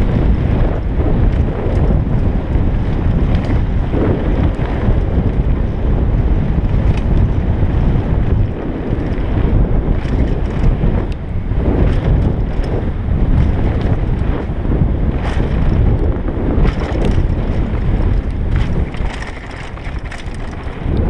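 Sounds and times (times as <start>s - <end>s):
bike clicks and rattles: 0.0s - 21.0s
bike tyres rumbling on dirt: 0.0s - 21.0s
wind buffeting microphone: 0.0s - 21.0s.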